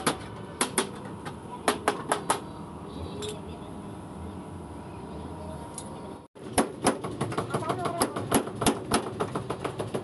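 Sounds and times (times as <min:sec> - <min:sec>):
hand tool knocking on sheet metal: 0:06.6 - 0:10.0.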